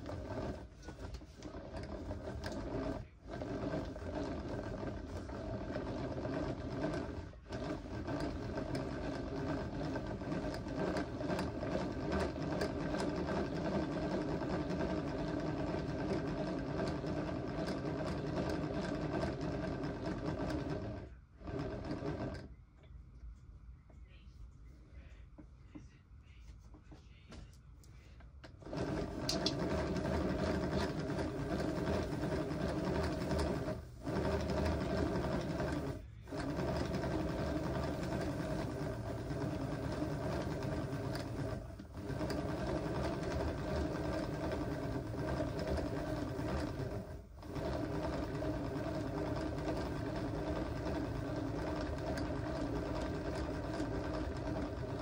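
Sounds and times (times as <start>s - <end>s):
small motor whirring hum: 28.5s - 55.0s.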